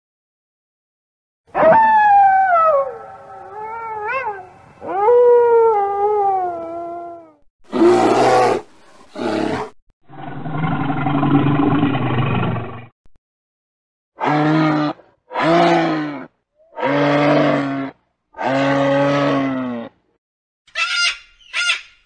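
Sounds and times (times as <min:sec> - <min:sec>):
wolf howling: 0:01.6 - 0:07.4
bear growling: 0:07.7 - 0:12.9.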